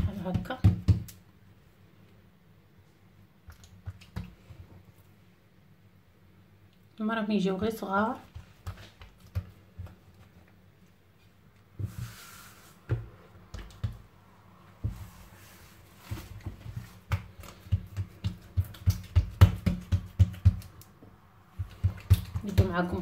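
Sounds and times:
hands slapping dough on board: 0.0 - 1.2, 8.3 - 10.0, 12.8 - 14.1, 16.0 - 23.0.

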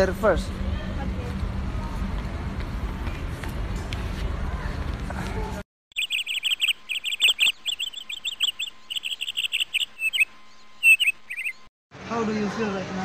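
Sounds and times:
rapid high-pitched chirping: 5.9 - 11.7.

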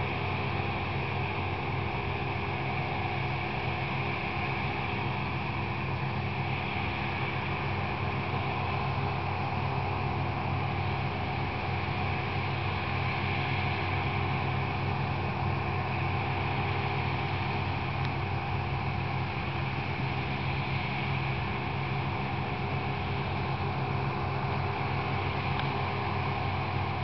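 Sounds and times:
harvester engines droning: 0.0 - 27.0.

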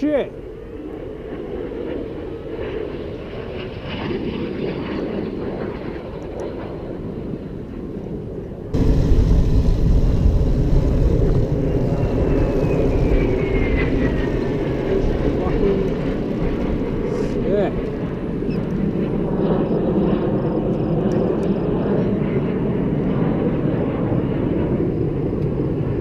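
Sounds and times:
airplane engine overhead: 0.0 - 26.0
wind rumble: 0.0 - 26.0
motorcycle moving: 8.8 - 19.0.

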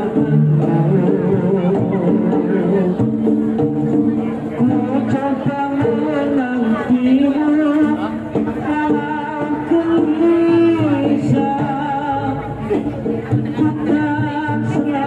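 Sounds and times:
person singing long wavering notes: 0.0 - 3.3
percussion and instrumental ensemble: 0.0 - 15.0.

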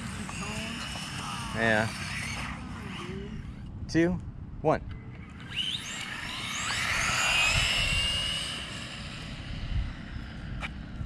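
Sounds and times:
rc car electric motors whining: 0.0 - 3.8, 5.0 - 11.0.

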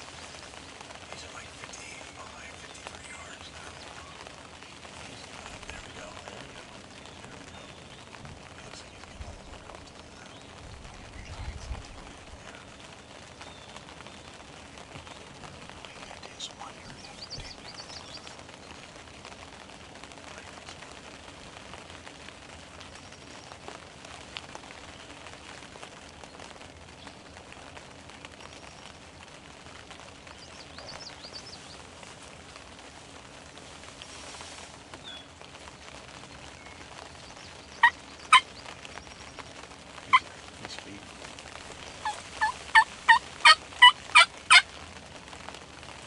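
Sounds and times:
faint songbird chirps: 0.0 - 18.8, 29.9 - 32.1
outdoor hiss: 0.0 - 46.0
sharp turkey calls: 37.8 - 38.8, 40.1 - 40.4, 41.8 - 44.8.

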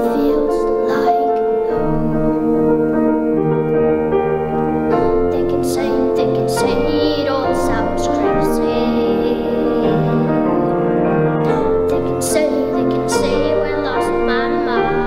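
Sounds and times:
boy singing into a microphone: 0.0 - 2.5, 5.0 - 10.7, 11.4 - 15.0
sustained keyboard chords: 0.0 - 15.0.

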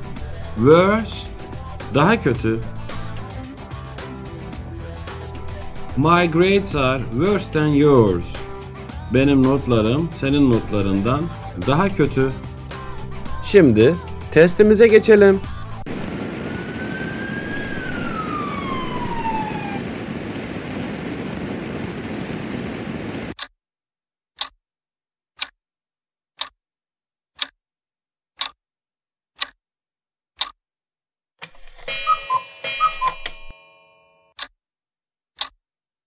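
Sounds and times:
steady rushing noise: 15.9 - 23.4
whistling tone sliding down: 16.3 - 19.9, 31.9 - 33.5
countdown clock ticking: 24.4 - 24.6, 25.4 - 25.6, 26.4 - 26.6, 27.4 - 27.6, 28.4 - 28.6, 29.4 - 29.6, 31.4 - 34.5.

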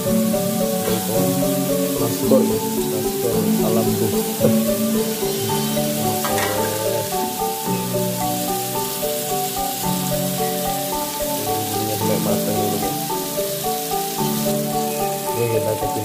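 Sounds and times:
background music: 0.0 - 16.0
food sizzling in hot oil: 0.0 - 16.0.

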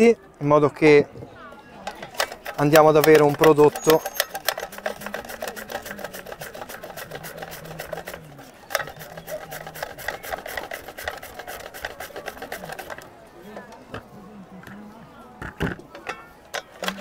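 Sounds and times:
mandoline blade rasping through cabbage: 2.2 - 13.0.

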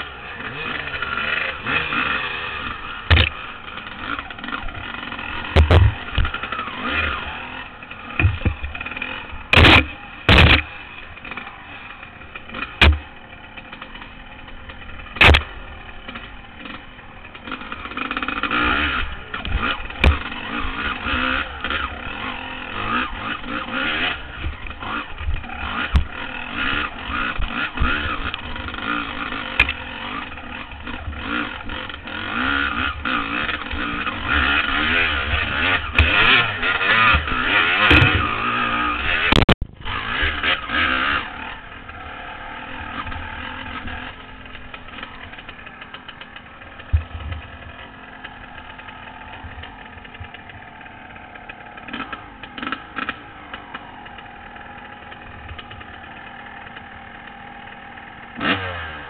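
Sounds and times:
dirt bike engine revving: 0.0 - 59.0
sharp knocks from bumps: 3.1 - 3.4, 5.5 - 6.4, 8.2 - 8.7, 9.5 - 10.7, 12.6 - 13.1, 15.2 - 15.5, 19.4 - 20.3, 35.7 - 38.4.

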